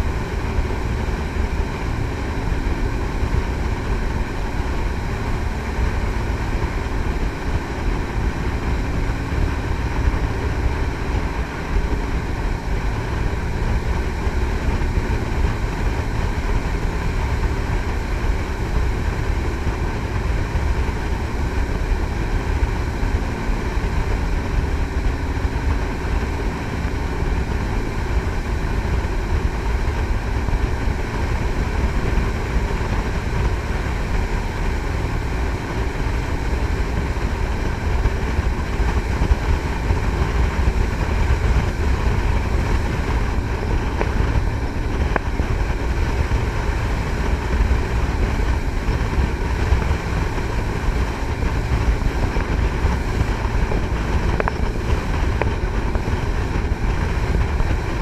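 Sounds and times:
boat engines droning: 0.0 - 58.0
wind on microphone: 0.0 - 58.0.

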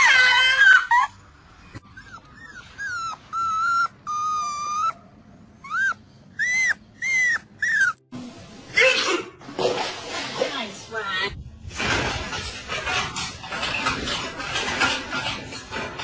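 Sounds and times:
dog whining: 0.0 - 8.1.

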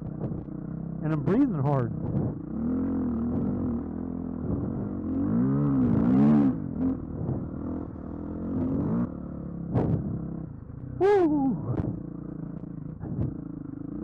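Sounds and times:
dirt bike engine revving: 1.0 - 10.4.

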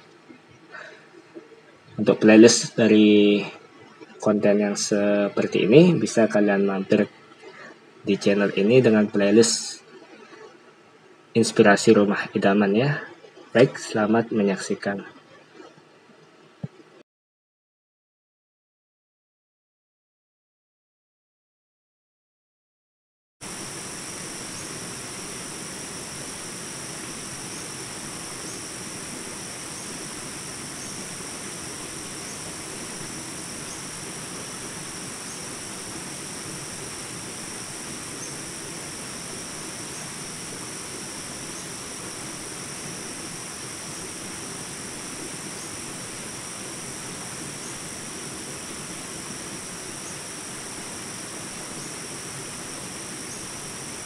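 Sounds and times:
background hiss: 23.4 - 54.0
insect shrilling: 23.5 - 54.0.

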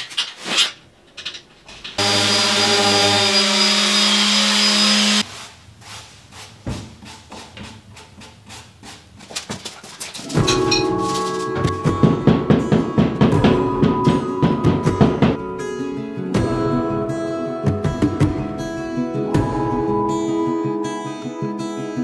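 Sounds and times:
orbital sander running: 2.0 - 5.2
brush rubbing wood: 5.2 - 10.3.

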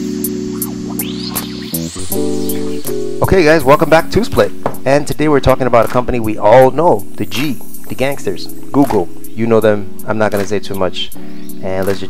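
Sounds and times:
logo music with ticking beat: 0.0 - 5.1.

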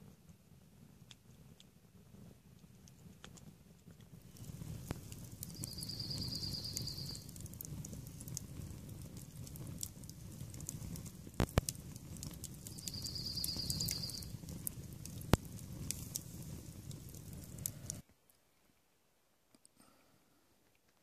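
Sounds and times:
low rush of flames: 0.0 - 18.0
campfire crackling and popping: 0.0 - 18.4.

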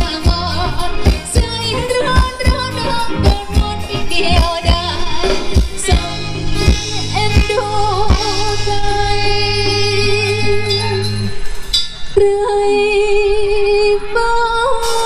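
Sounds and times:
steady drum beat: 0.0 - 8.9
person singing a melody: 0.0 - 11.1.

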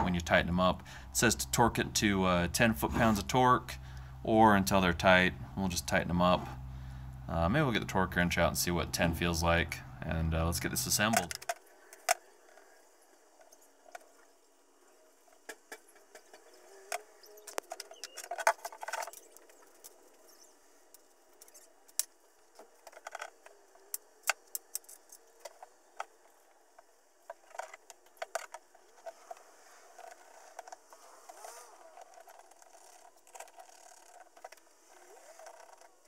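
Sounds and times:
clicks and rattles of screws: 20.9 - 36.0.

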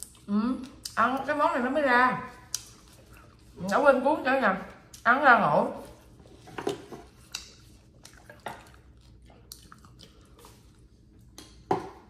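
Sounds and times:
people chewing: 2.4 - 3.8, 5.8 - 11.7.

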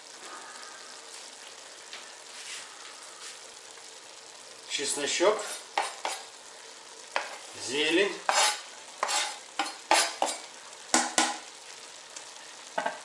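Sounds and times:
stew sizzling in pot: 0.0 - 13.0
knife scraping wooden cutting board: 5.4 - 6.2, 8.3 - 10.4.

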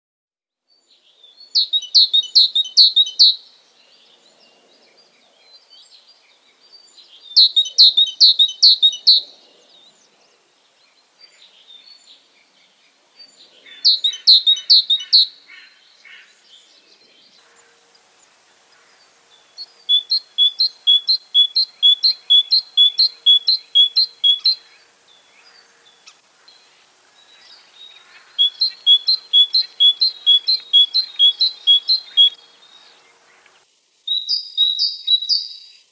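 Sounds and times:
bird singing two-note call: 28.4 - 32.4.

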